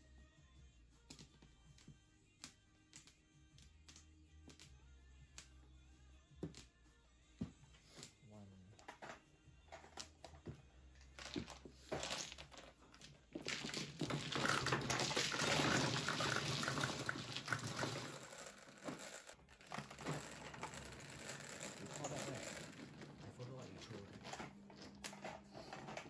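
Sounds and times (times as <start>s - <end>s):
mahjong tiles clattering: 11.2s - 26.0s
tiles clicking: 13.4s - 23.2s
table motor humming: 14.4s - 23.1s.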